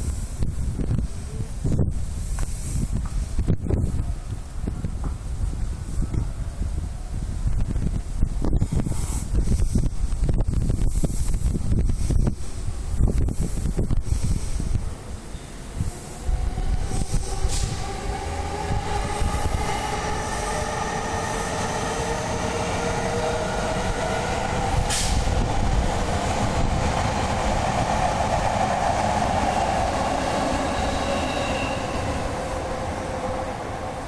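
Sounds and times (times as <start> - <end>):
electric train rumbling past: 8.6 - 34.0
high squealing tones: 29.7 - 32.7.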